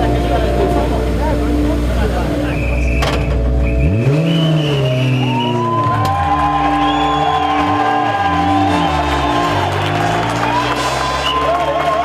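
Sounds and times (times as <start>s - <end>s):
slow background music: 0.0s - 4.6s.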